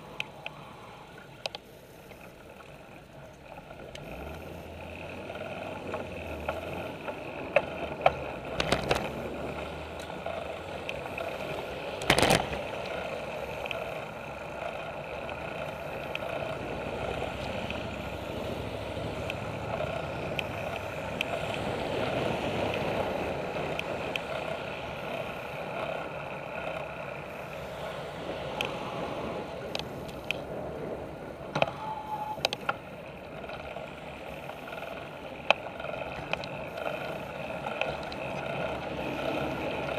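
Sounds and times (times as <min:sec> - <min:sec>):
bicycle tyre and wind noise: 0:00.0 - 0:39.9
bike knocking and rattling: 0:05.3 - 0:18.1, 0:32.5 - 0:39.9.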